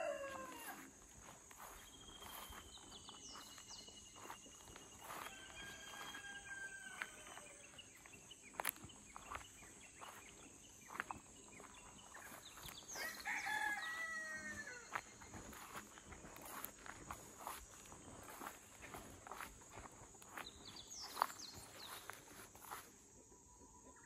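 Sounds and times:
rooster crowing: 0.0s - 1.0s, 5.0s - 7.8s, 12.9s - 15.6s
footsteps on grass: 0.0s - 23.0s.

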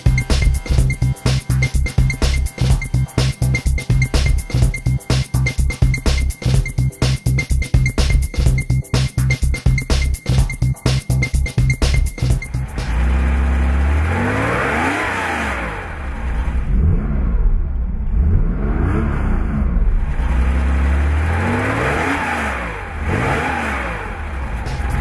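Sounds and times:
car engine revving: 12.0s - 25.0s.

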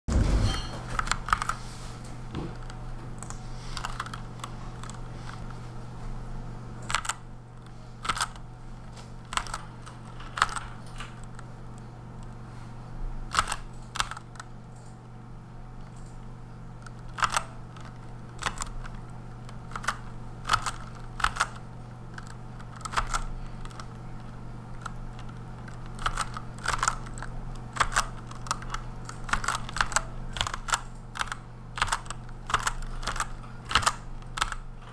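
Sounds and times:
steady low hum: 0.1s - 34.9s
mechanical keyboard typing: 2.6s - 5.4s, 6.8s - 8.4s, 9.2s - 11.4s, 13.3s - 15.0s, 16.8s - 34.9s.

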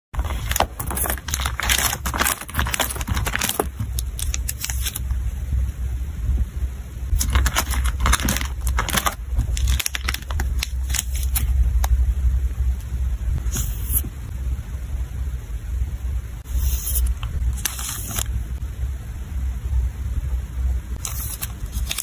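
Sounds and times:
steady low hum: 0.1s - 22.0s
plastic sleeves crinkling: 0.2s - 5.0s, 7.1s - 11.6s, 21.0s - 22.0s.

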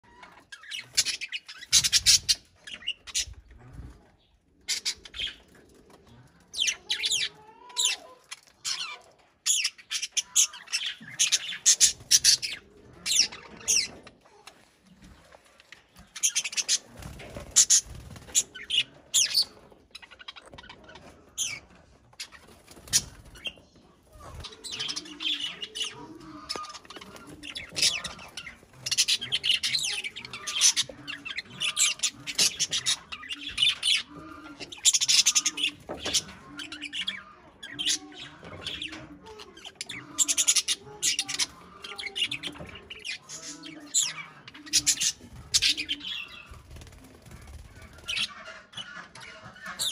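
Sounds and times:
budgerigars chirping agitatedly: 0.4s - 3.5s, 4.6s - 5.5s, 8.7s - 14.0s, 16.0s - 21.6s, 22.2s - 49.9s.

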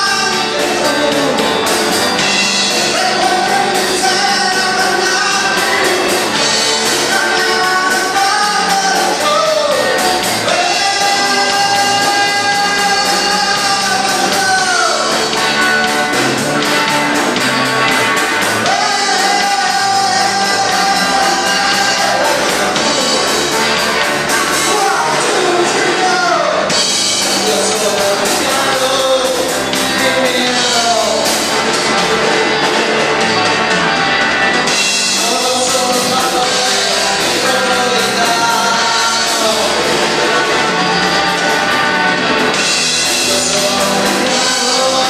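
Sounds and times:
lead guitar held notes: 0.0s - 45.0s
rock band playing: 0.0s - 45.0s.

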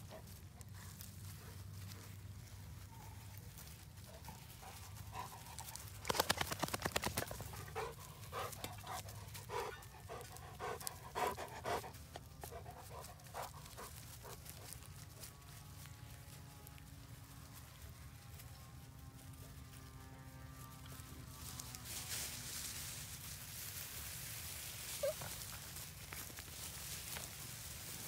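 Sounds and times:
dog panting: 4.1s - 6.4s, 7.1s - 14.8s.

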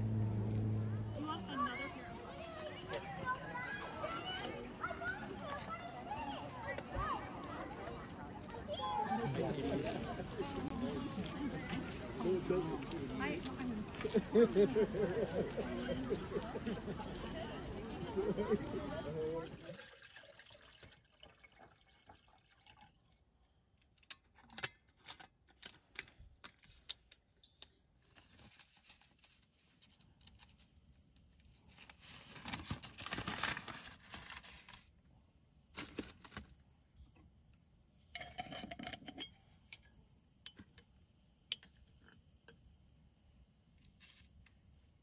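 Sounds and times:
paper coffee filters rustling: 27.8s - 35.0s, 35.7s - 36.7s
small clicks and knocks of mugs: 38.0s - 42.7s.

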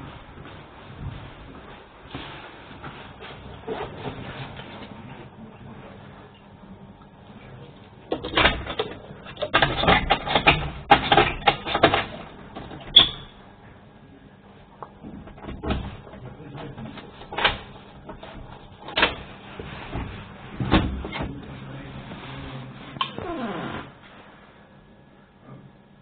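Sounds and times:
clattering knocks and clicks: 8.1s - 13.0s.

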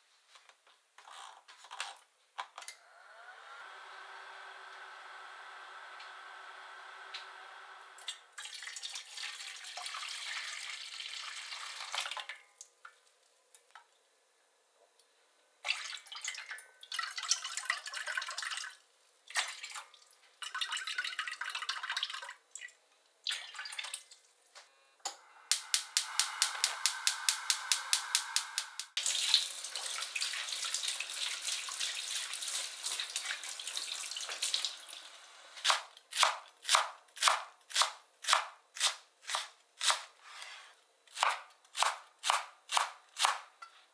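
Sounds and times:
liquid pouring into metal pot: 8.0s - 13.0s, 19.4s - 24.1s
knife chopping on cutting board: 41.2s - 43.5s.

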